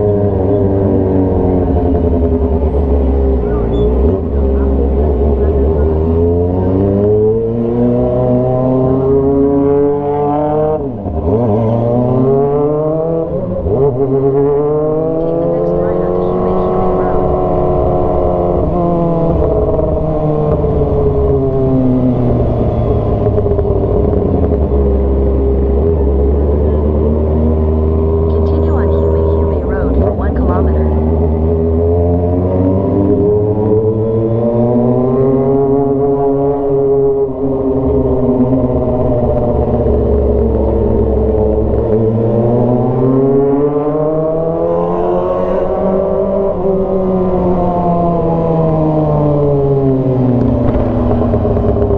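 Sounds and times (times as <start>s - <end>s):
motorcycle engine revving: 0.0s - 51.9s
motorcycle engine slowing: 47.8s - 51.9s.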